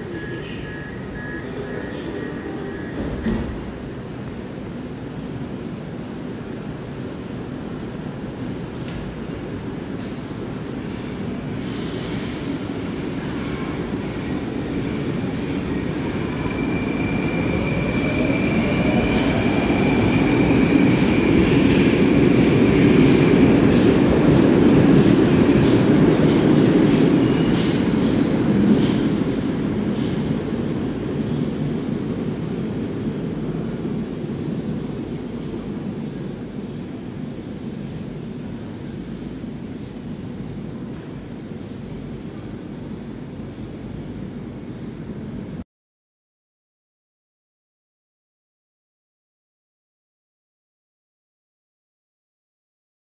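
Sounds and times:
rail and wheel rumble: 0:00.0 - 0:45.6.

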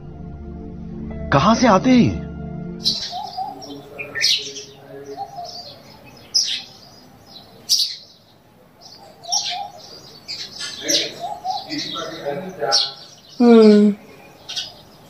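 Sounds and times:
birds chirping: 0:00.8 - 0:15.0
low wavering bird call: 0:02.8 - 0:06.7.

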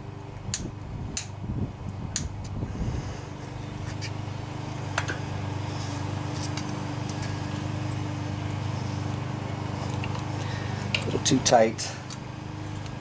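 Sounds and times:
low mechanical hum: 0:00.0 - 0:13.0
feeler gauge clicks: 0:00.4 - 0:01.3, 0:02.1 - 0:02.6.

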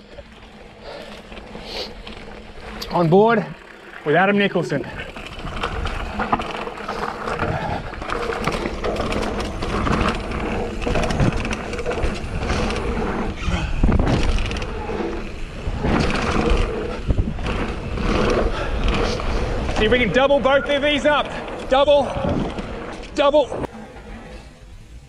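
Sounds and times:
bike rattling over bumps: 0:00.0 - 0:25.0
tyres running over dirt: 0:00.0 - 0:25.0
wind rumble on microphone: 0:07.4 - 0:20.3, 0:21.2 - 0:23.0.

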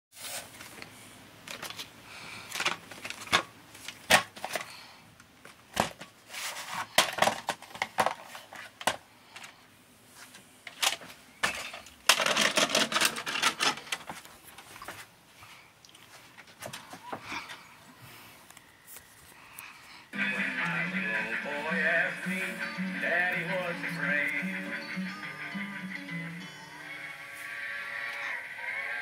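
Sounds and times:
objects knocking and clicking: 0:10.8 - 0:14.1.

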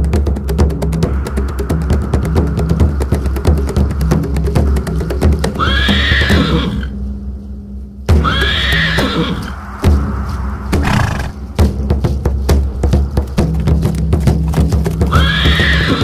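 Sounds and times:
horse whinnying: 0:05.6 - 0:06.9, 0:08.2 - 0:09.5, 0:10.8 - 0:11.4, 0:15.1 - 0:16.0.

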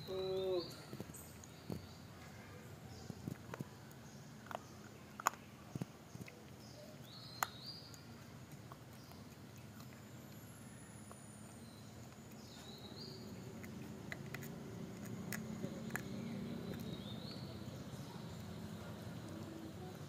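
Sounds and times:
puppy chewing a bone: 0:00.8 - 0:20.0
sharp crunching clicks: 0:03.0 - 0:06.6, 0:11.9 - 0:17.4.

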